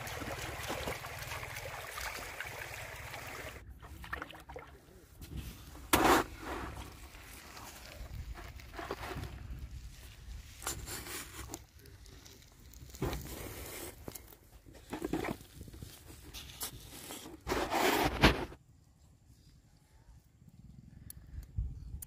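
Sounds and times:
scrapes and crunches in sand: 5.0 - 18.6.

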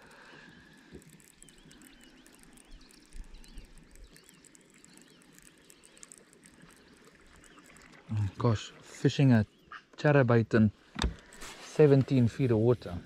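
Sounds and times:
faint bird chirps: 0.0 - 10.0
quiet lakeside ambience: 0.0 - 13.0.

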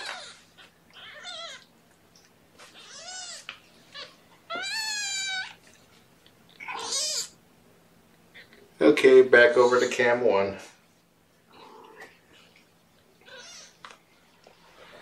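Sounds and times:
cat meowing: 0.0 - 1.7, 2.8 - 5.6, 6.6 - 7.4, 13.2 - 13.8.

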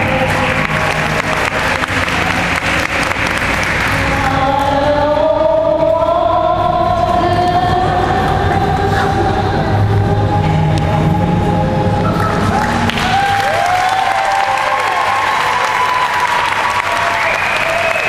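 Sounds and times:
audience applauding: 0.0 - 4.4, 12.1 - 18.0.

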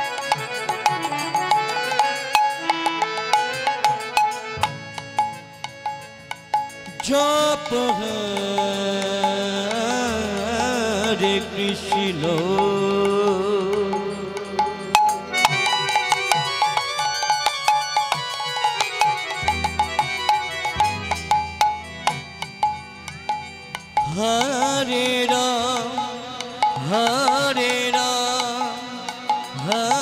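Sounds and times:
rapid hand-drum strokes: 0.0 - 30.0
sustained melodic tones: 0.0 - 30.0
person singing: 6.9 - 17.3, 24.0 - 30.0.

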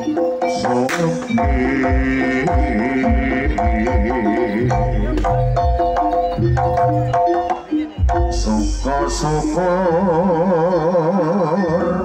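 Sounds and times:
hand drums: 0.0 - 10.0
pitched metal percussion: 0.0 - 12.0
wavering melody line: 0.0 - 12.0.

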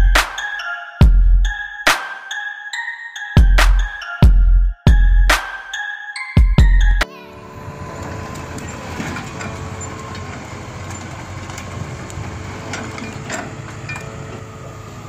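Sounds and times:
excavator diesel engine running: 7.6 - 15.0.

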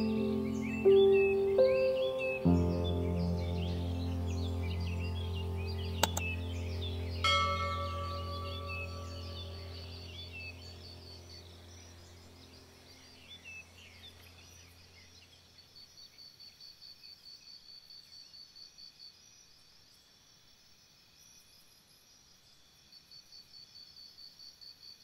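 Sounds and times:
low background music drone: 0.0 - 14.8
high-pitched insect chirping: 3.7 - 13.6.

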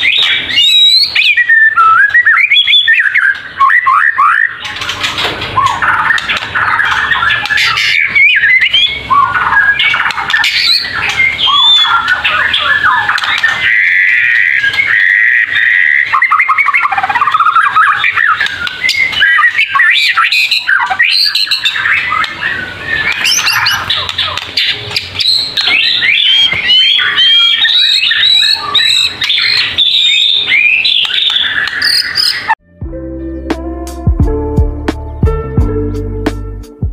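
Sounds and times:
bird singing whistles and trills: 0.0 - 32.6
music: 32.6 - 36.9.

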